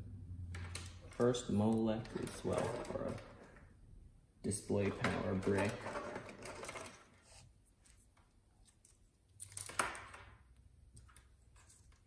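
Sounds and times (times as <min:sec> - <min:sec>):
cables rustling and scraping: 0:01.0 - 0:03.7, 0:11.0 - 0:12.0.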